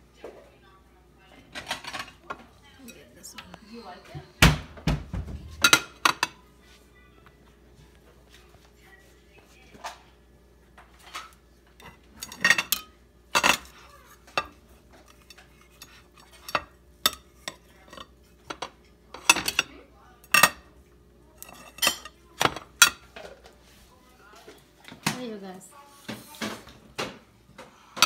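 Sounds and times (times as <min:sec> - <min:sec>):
knife clinking on ceramic plate: 0:21.4 - 0:23.0.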